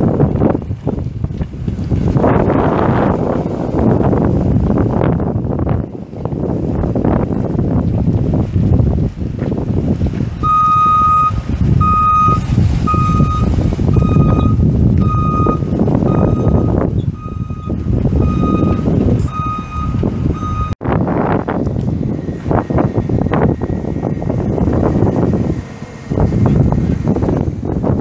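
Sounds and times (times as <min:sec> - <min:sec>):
truck engine rumble: 0:00.0 - 0:28.0
backup alarm beeping: 0:10.4 - 0:20.8.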